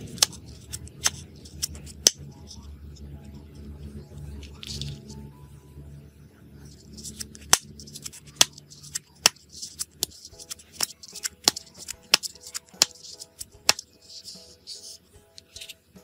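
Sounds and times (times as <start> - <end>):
soft background music: 0.0 - 16.0
pop-it fidget clicking: 7.0 - 14.3.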